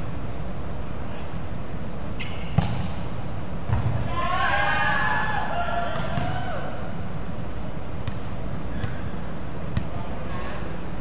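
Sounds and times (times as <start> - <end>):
volleyball smacks on gym floor: 2.5 - 3.0.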